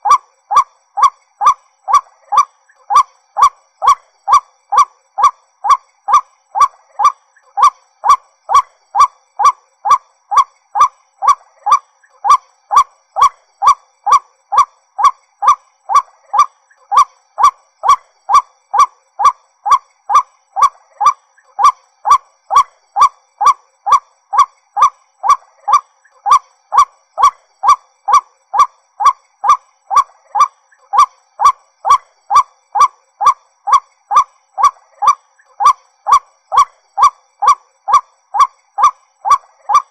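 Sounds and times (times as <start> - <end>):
waterhen calling: 0.0 - 39.9.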